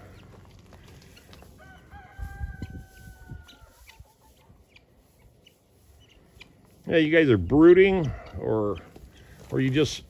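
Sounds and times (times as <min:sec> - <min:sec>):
rooster crowing: 0:01.6 - 0:03.8.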